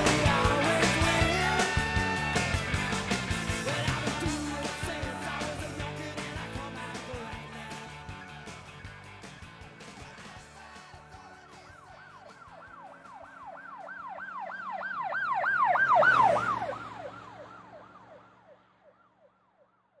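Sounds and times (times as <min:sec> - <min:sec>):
siren wailing: 0:11.2 - 0:20.0.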